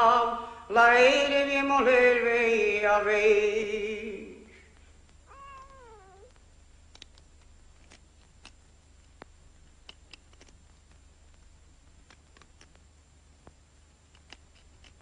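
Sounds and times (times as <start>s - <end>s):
faint clicks: 4.7s - 15.0s
cat meowing: 5.3s - 6.3s.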